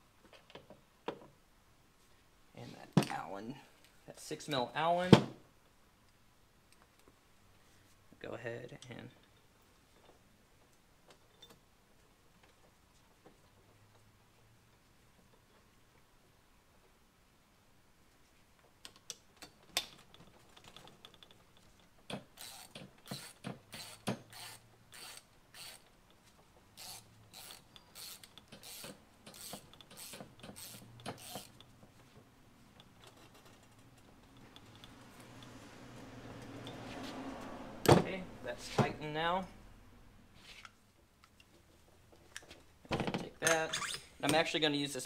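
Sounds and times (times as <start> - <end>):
hand ratchet clicking: 22.2 - 25.9, 26.8 - 31.7.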